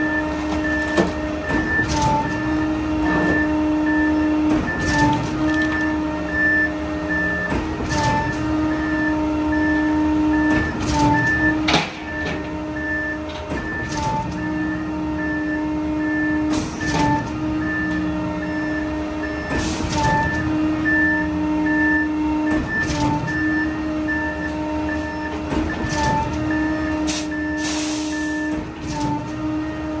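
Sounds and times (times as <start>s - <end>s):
diesel engine hum: 0.0s - 30.0s
air hiss: 27.1s - 28.4s.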